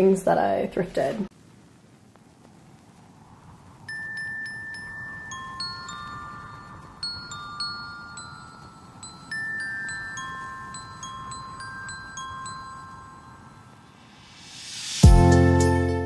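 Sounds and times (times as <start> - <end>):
bell-like chime melody: 3.9 - 14.4.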